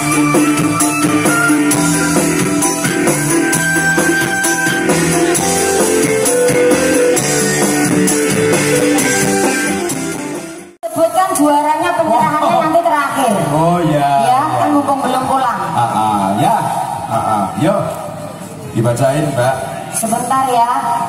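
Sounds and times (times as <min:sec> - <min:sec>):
electric guitar long held notes: 0:00.0 - 0:10.7
background music: 0:00.0 - 0:15.8.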